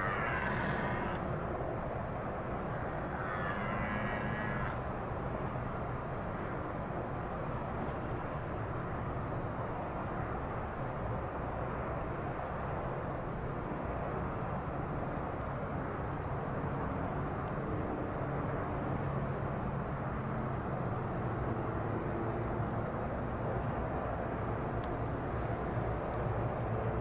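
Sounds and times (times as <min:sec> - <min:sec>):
deer stag roaring: 0:00.0 - 0:01.3, 0:02.8 - 0:04.8.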